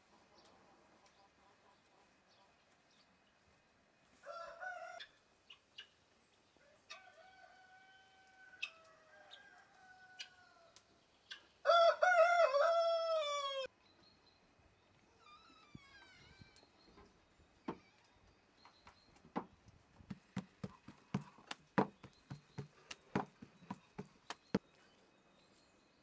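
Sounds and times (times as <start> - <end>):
rooster crowing: 4.2 - 5.0, 6.7 - 10.7, 11.6 - 13.7.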